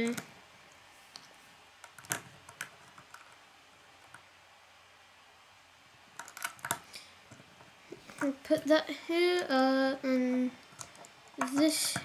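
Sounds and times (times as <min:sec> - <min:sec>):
plastic bricks clicking: 0:06.2 - 0:06.8, 0:10.7 - 0:12.0.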